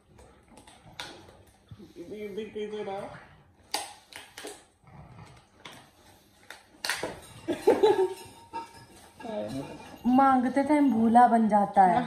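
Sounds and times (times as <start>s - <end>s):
dog sniffing and snorting: 0.0s - 6.9s
dogs snarling: 4.4s - 6.6s.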